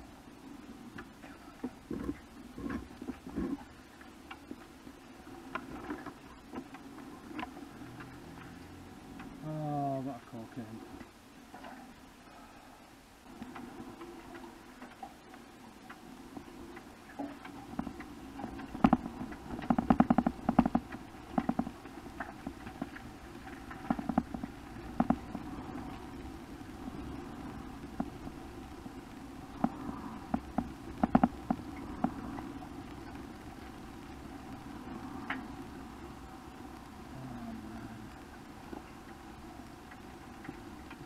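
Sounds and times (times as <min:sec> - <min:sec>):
sharp clicks and knocks: 0:17.2 - 0:25.4, 0:29.6 - 0:32.5.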